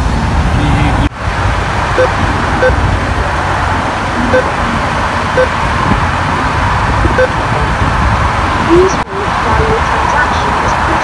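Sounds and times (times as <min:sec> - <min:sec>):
keypad beeps: 0:02.0 - 0:02.8, 0:07.2 - 0:07.4.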